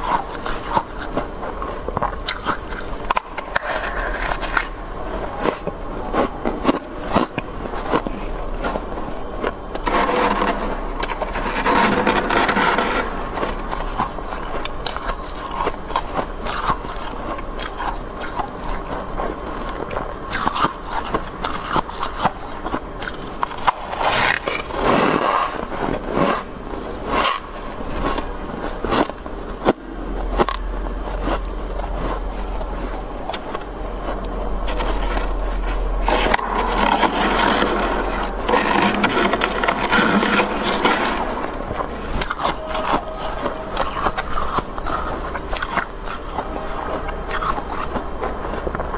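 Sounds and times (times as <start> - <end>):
metal ladle scraping frost: 34.7 - 44.4.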